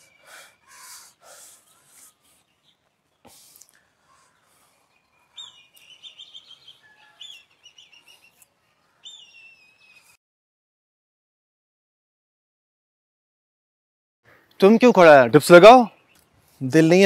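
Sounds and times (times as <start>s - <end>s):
small birds chirping: 0.0s - 10.2s, 15.5s - 17.0s.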